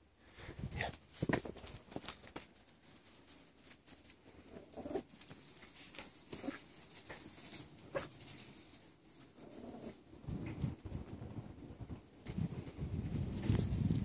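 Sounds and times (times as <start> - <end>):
puppy paws scampering on concrete: 0.7 - 10.0.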